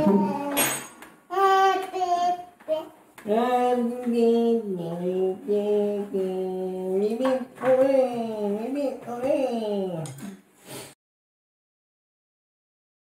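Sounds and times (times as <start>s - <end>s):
child singing long notes: 0.0s - 0.7s, 1.3s - 2.9s.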